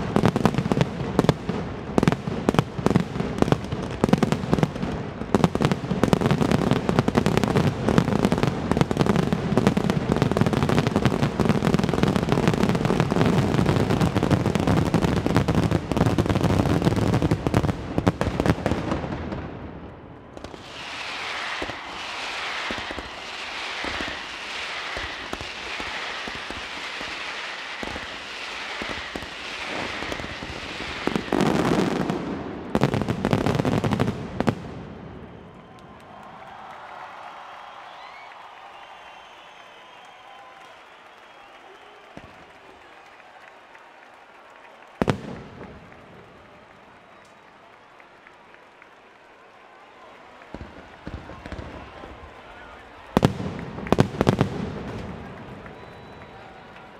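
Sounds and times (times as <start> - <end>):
firecrackers banging: 20.3 - 34.9, 50.5 - 56.9.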